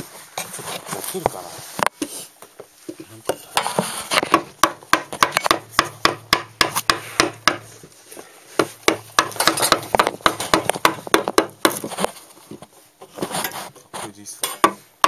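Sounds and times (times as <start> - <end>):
carving chisel knocking into wood: 4.2 - 7.6, 8.6 - 12.0.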